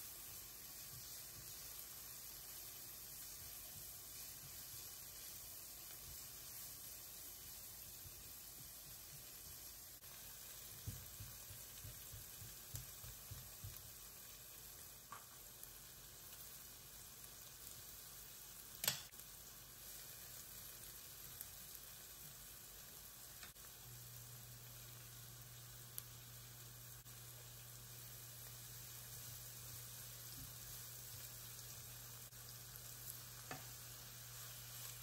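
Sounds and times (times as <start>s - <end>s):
vegetables sizzling in oil: 0.0s - 35.0s
spatula knocking in pan: 10.8s - 13.8s.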